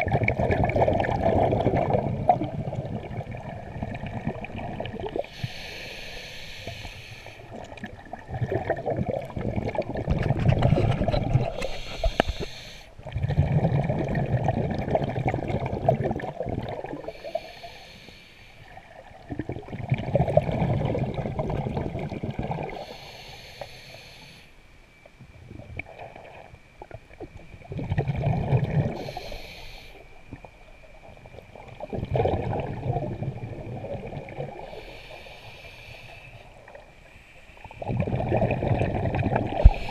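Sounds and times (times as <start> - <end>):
exhaust bubbles rushing: 0.0 - 5.2, 13.1 - 17.0, 37.8 - 39.7
regulator inhale hiss: 5.1 - 7.6, 11.3 - 13.0, 17.0 - 18.9, 22.6 - 24.7, 28.9 - 30.2, 34.5 - 37.8, 39.4 - 39.9.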